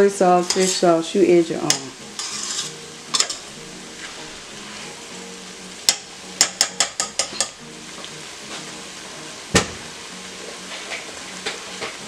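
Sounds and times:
vegetables sizzling in a pot: 0.0 - 12.0
knock on pot: 9.5 - 9.8.

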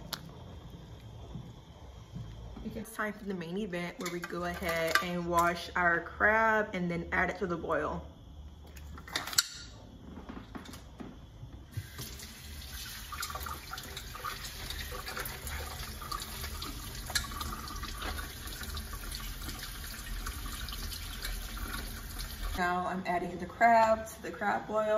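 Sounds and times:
faucet water splashing: 11.8 - 22.6.

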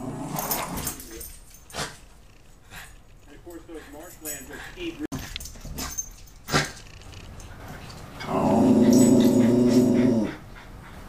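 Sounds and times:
dog growling: 0.0 - 1.1, 6.5 - 10.4.

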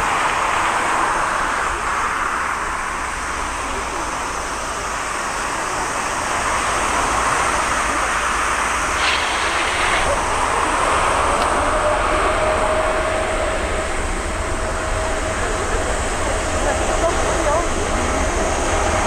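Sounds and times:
jet engine rush: 0.0 - 19.0
jet engine whine: 0.0 - 19.0.

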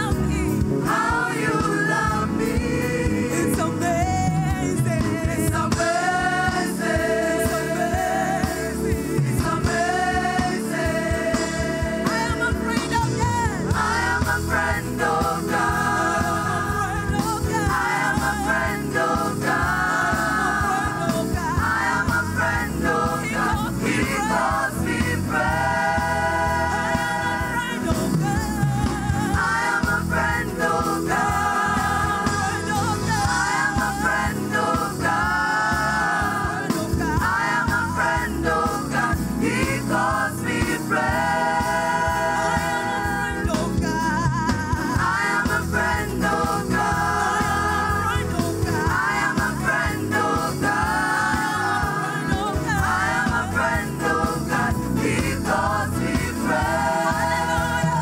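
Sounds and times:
voices singing gospel song: 0.0 - 58.0
instrumental accompaniment with beat: 0.1 - 58.0.

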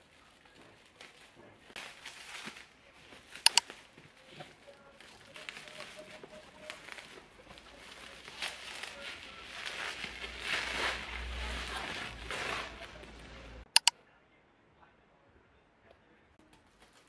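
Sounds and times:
plastic packaging crinkling: 0.0 - 13.3
sharp clicks: 3.4 - 3.7, 13.7 - 14.0.

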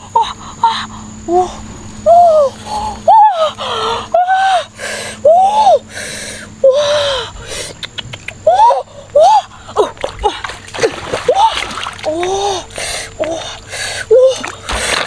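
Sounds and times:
woman gasping and squealing: 0.2 - 7.7.

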